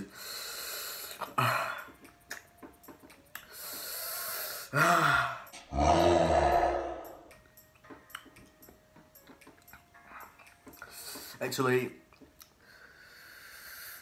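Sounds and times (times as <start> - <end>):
man hissing breaths: 0.0 - 1.9, 3.5 - 5.6, 12.6 - 14.0
man strained cry: 4.8 - 7.3
man short vocal sounds: 5.7 - 7.3.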